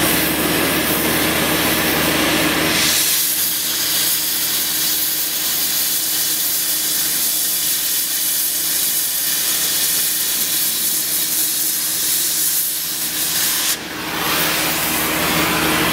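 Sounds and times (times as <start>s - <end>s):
cutting torch gas jet hissing: 0.0s - 15.9s.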